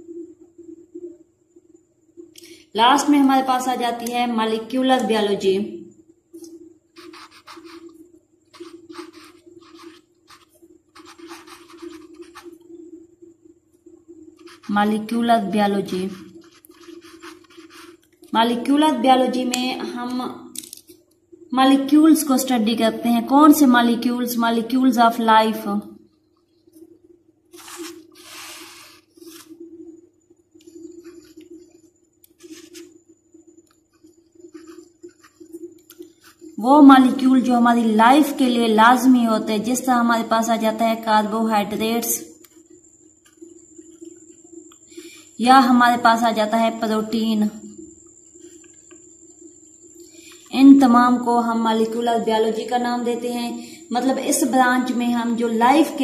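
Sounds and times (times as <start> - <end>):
faint steady hum: 0.0 - 56.0
marker pen scratching on paper: 6.9 - 12.6, 14.4 - 15.2, 15.8 - 18.2, 27.5 - 29.6, 30.8 - 31.7, 32.3 - 33.0, 33.9 - 36.6.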